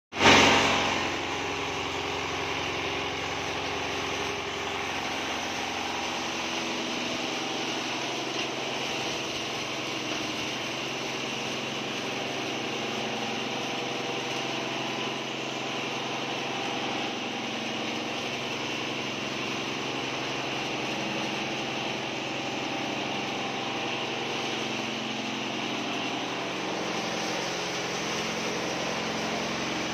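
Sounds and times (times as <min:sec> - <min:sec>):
diesel engine driving grain mill: 0:00.1 - 0:29.9.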